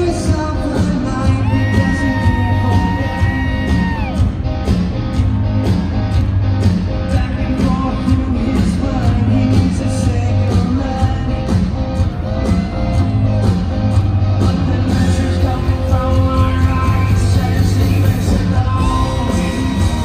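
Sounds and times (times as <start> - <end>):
man singing: 0.0 - 4.1, 6.9 - 12.0, 14.3 - 20.0
bass guitar: 0.0 - 20.0.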